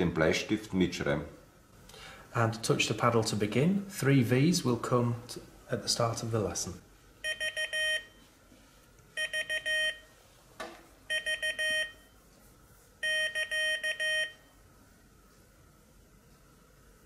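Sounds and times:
morse code tone: 0:07.2 - 0:08.2, 0:09.2 - 0:10.1, 0:11.1 - 0:12.1, 0:13.0 - 0:14.5.

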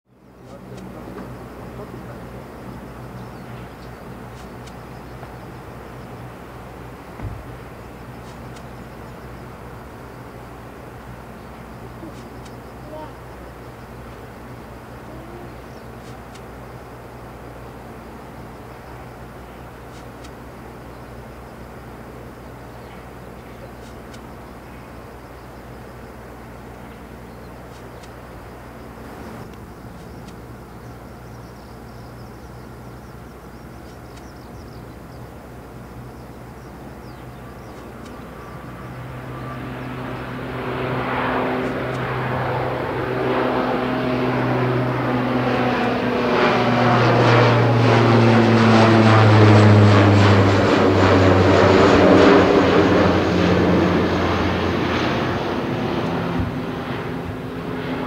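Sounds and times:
deep propeller drone: 0:00.0 - 0:58.0.

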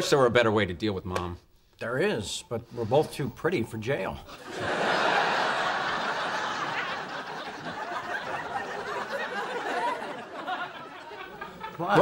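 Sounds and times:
studio audience laughing: 0:04.4 - 0:12.0.

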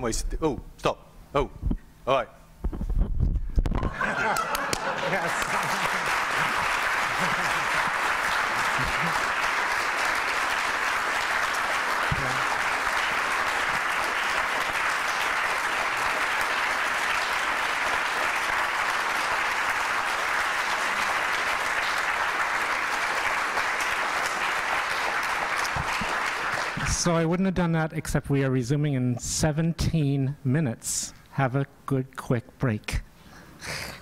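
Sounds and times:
audience applauding: 0:03.8 - 0:27.3.

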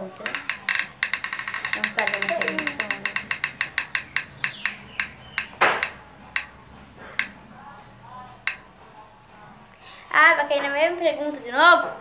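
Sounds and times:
phone app wheel ticking: 0:00.2 - 0:07.4, 0:08.4 - 0:08.7.

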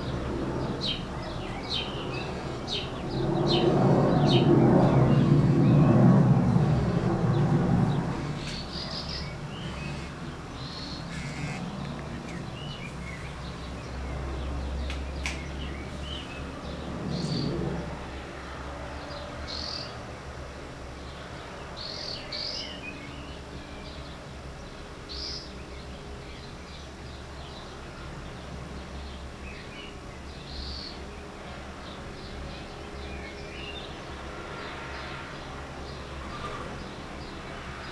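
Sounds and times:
faint outdoor ambience: 0:00.0 - 0:37.9
birds chirping: 0:06.6 - 0:17.9.

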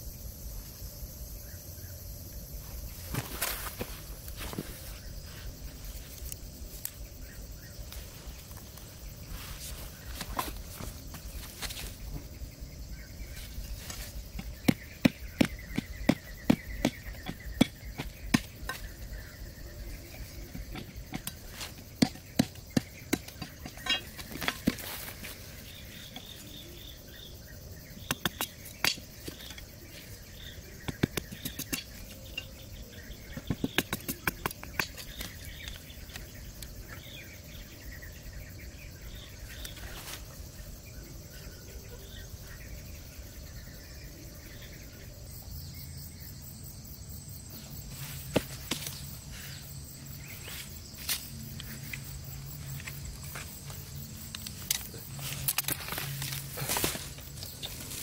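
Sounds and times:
insects chirping: 0:00.0 - 0:58.0
knife cutting and tapping bamboo: 0:13.8 - 0:19.1, 0:20.2 - 0:25.4, 0:28.0 - 0:32.6, 0:33.3 - 0:36.8, 0:48.2 - 0:49.2, 0:52.7 - 0:58.0.

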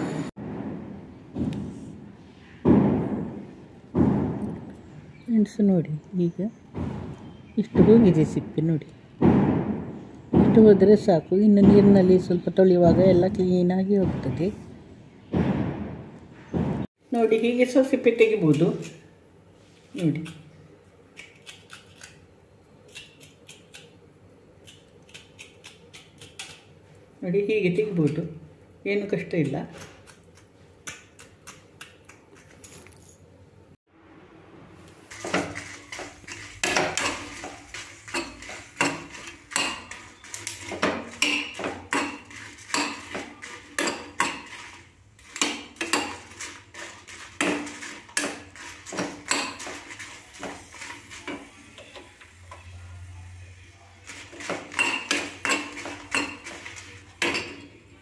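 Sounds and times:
metal spoon scraping metal pan: 0:34.9 - 0:52.6, 0:54.0 - 0:57.7.

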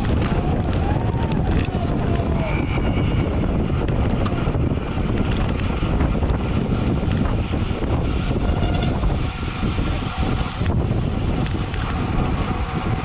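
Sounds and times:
wind rushing over microphone: 0:00.0 - 0:13.0
faint clicks: 0:11.4 - 0:12.0.

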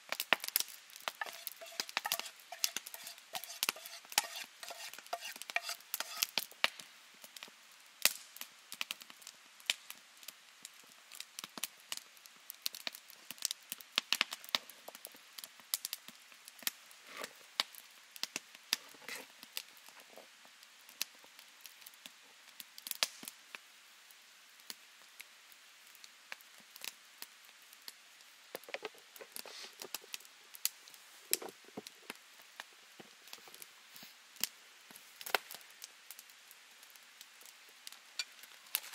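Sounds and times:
dough squishing and clicking: 0:00.1 - 0:06.4.

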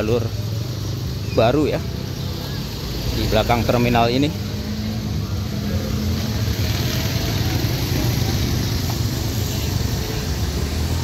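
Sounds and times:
motorcycle and scooter engines: 0:00.0 - 0:11.0.

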